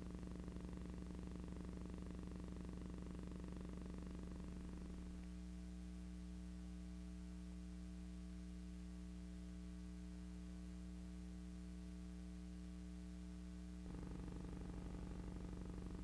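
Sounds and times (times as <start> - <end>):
electrical mains hum: 0.0 - 16.0.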